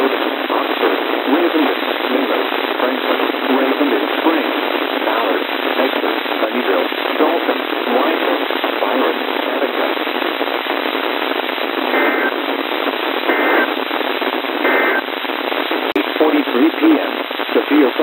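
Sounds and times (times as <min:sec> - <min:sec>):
radio static hiss: 0:00.0 - 0:18.0
digital data tone bursts: 0:11.9 - 0:12.4, 0:13.3 - 0:13.7, 0:14.6 - 0:15.0.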